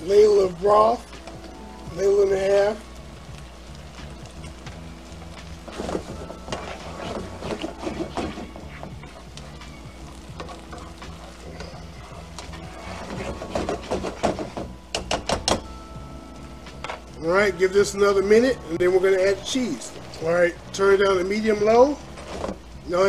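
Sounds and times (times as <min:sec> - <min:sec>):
wooden spoon scraping a pan: 0:05.4 - 0:14.8, 0:22.0 - 0:22.6.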